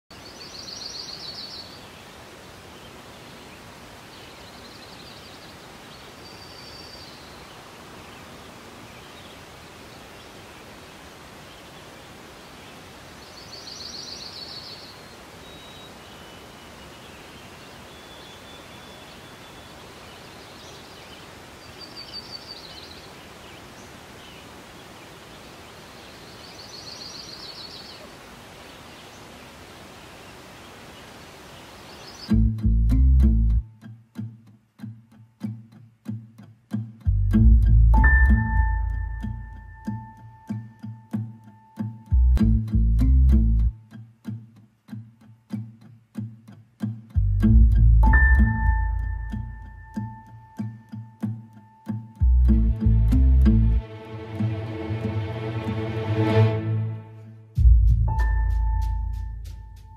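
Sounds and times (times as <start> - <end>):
outdoor background noise: 0.1 - 59.9
faint whistled bird calls: 13.4 - 16.8.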